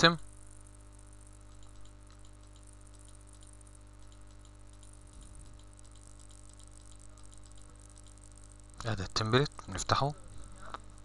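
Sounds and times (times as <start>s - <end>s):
low electrical hum: 0.0s - 11.0s
mouse clicks: 1.5s - 8.9s.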